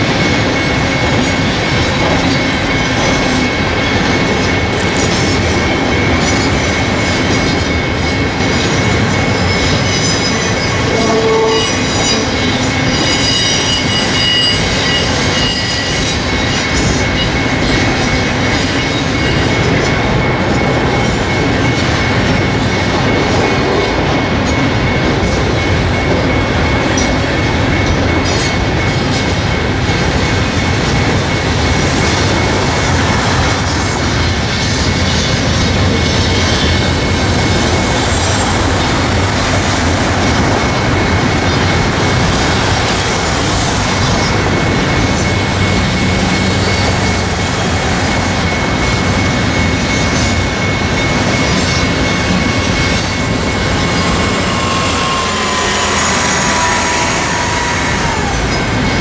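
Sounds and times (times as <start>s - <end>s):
freight train rumbling on rails: 0.0s - 59.0s
high-pitched wheel squeal: 9.3s - 16.2s, 53.6s - 58.9s.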